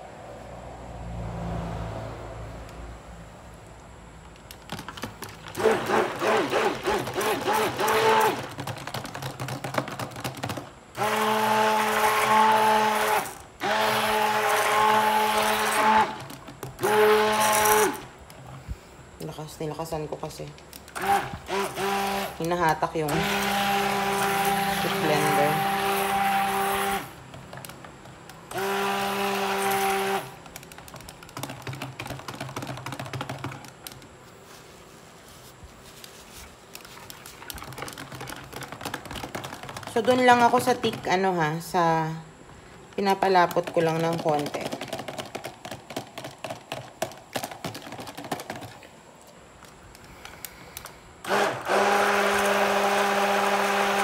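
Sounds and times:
stick blender motor humming: 0:05.5 - 0:08.7, 0:10.9 - 0:18.1, 0:20.9 - 0:27.7, 0:28.5 - 0:31.8, 0:51.2 - 0:54.0.

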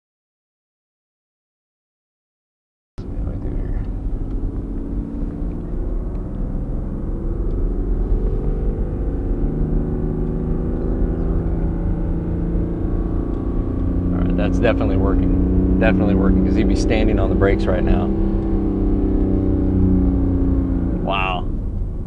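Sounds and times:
diesel engine exhaust brake drone: 0:03.0 - 0:22.0.

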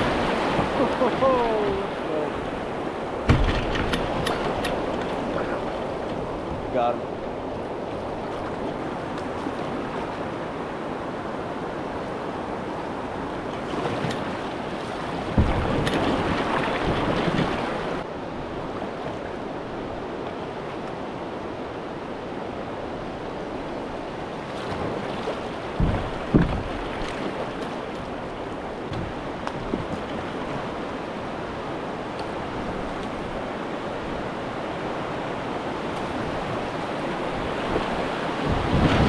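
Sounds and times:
river current rushing and splashing: 0:00.0 - 0:39.0
wind buffeting microphone: 0:01.5 - 0:18.8, 0:22.8 - 0:39.0
low thumps: 0:25.8 - 0:26.9.

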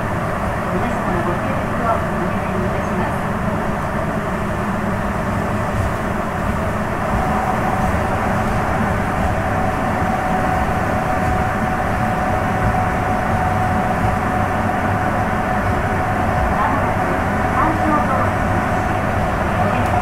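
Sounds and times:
thin steady whine: 0:00.0 - 0:20.0
train running rumble: 0:00.0 - 0:20.0.

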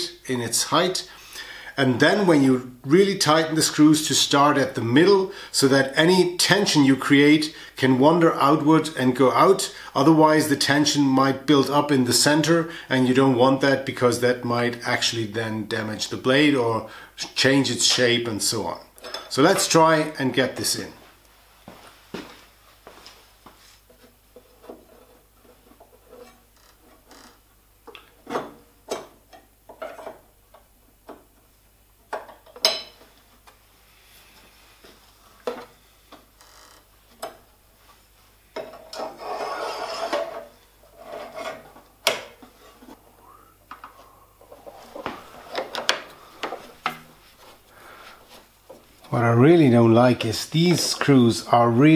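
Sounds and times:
metal blade scraping: 0:38.9 - 0:41.6.

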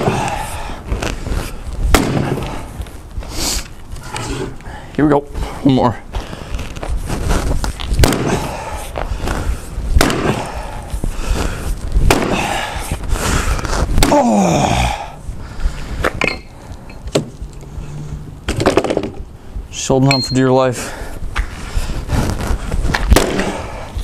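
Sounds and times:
axe chopping wood: 0:08.0 - 0:08.5, 0:10.0 - 0:10.5, 0:12.1 - 0:12.5.

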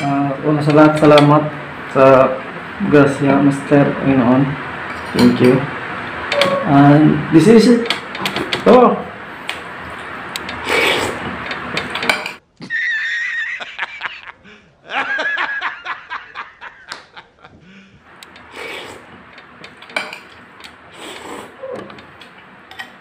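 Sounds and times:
man laughing heartily: 0:12.6 - 0:18.0.

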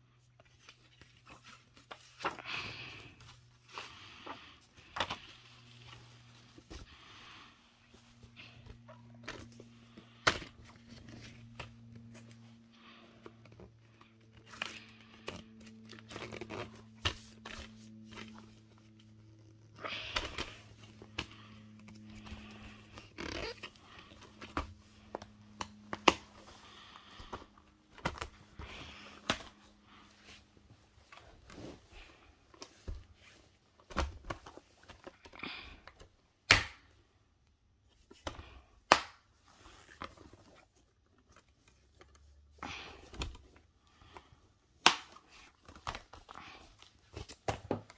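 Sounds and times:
paper insert rustling: 0:08.0 - 0:35.2.

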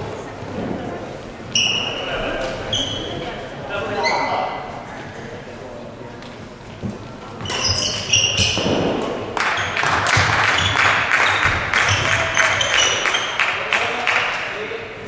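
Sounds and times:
shoes squeaking on court floor: 0:01.5 - 0:03.4, 0:04.0 - 0:04.5, 0:06.8 - 0:13.4
rackets hitting shuttlecock: 0:07.5 - 0:12.2.

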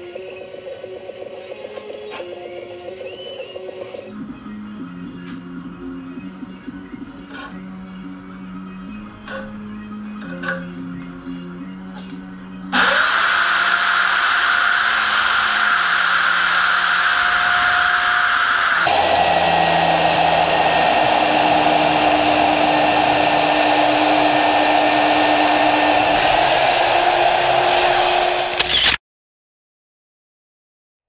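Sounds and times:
drill press boring through steel: 0:12.8 - 0:29.0.

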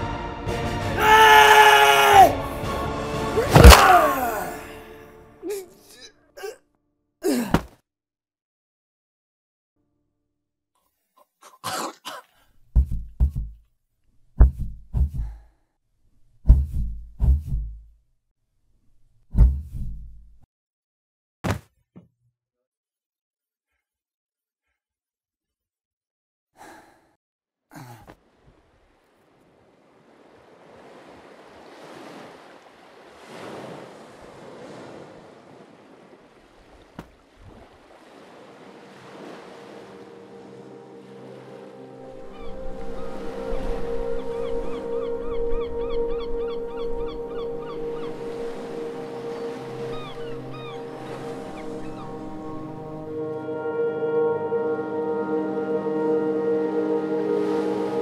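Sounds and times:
deep heartbeat: 0:12.8 - 0:13.6, 0:14.4 - 0:15.4, 0:16.5 - 0:17.9.

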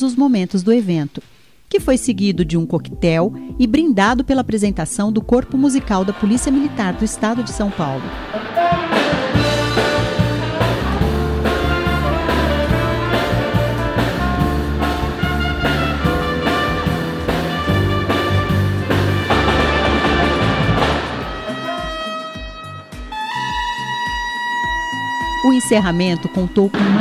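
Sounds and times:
brass band playing swing jazz: 0:05.5 - 0:27.0.

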